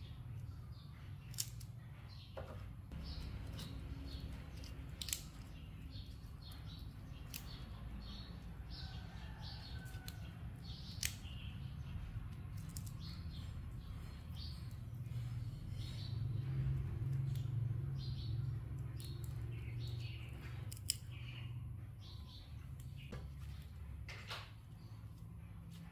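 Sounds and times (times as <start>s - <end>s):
flower stems snapping: 1.2s - 1.7s, 3.0s - 8.2s, 9.7s - 11.5s, 19.0s - 21.2s
petals tearing and rustling: 2.9s - 8.3s, 9.7s - 13.3s, 18.9s - 21.4s.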